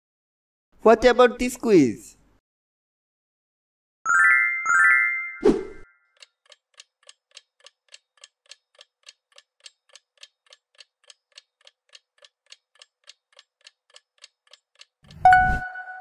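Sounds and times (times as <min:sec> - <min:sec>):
clock ticking: 0:06.2 - 0:15.6.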